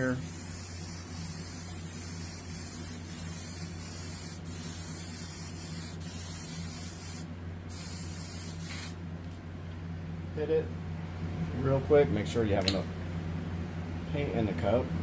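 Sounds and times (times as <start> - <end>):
airbrush spraying paint hiss: 0.0 - 9.0.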